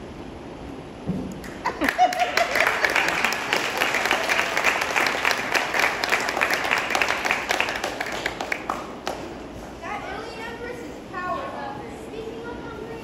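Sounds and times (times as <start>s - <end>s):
audience applauding: 1.4s - 9.4s.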